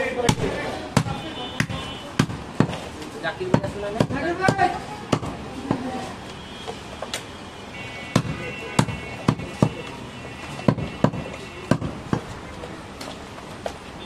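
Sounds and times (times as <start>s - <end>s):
cleaver chopping meat on wood: 0.2s - 2.8s, 3.4s - 5.8s, 8.1s - 9.9s, 10.6s - 12.3s.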